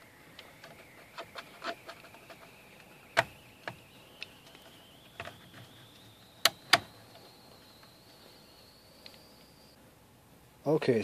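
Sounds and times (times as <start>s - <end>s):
faint high tone rising: 0.0s - 9.8s.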